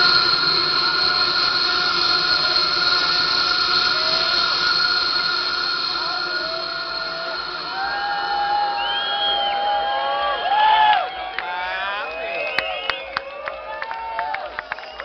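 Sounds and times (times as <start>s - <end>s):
short gliding tones: 0.0s - 10.5s
held high synth tones: 0.0s - 10.8s
hissing synth wash: 0.0s - 10.8s.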